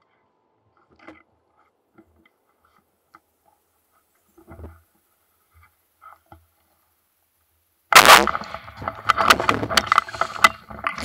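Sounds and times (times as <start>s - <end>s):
rustling and clatter: 0.7s - 6.8s, 8.0s - 11.0s
loud shotgun shot: 7.9s - 8.5s.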